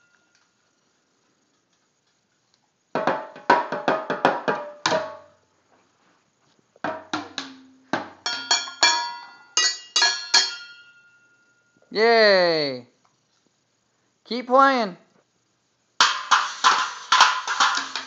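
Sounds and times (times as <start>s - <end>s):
toy drum and cymbal hits: 3.0s - 5.3s, 6.9s - 11.4s, 16.0s - 18.0s.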